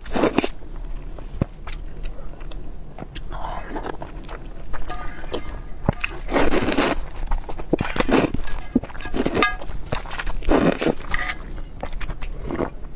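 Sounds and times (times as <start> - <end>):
chewing sounds: 0.0 - 12.9
person slurping noodles: 6.2 - 7.0, 10.4 - 11.0.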